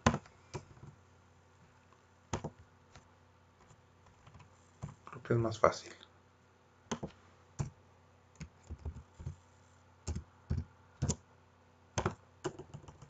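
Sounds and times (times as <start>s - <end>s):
keyboard keys clicking: 10.1s - 11.2s.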